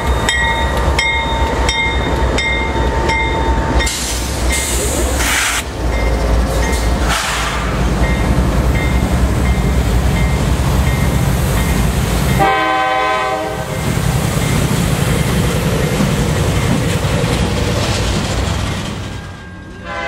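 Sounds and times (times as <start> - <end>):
freight train cars rumbling: 0.0 - 20.0
train horn: 12.4 - 13.8.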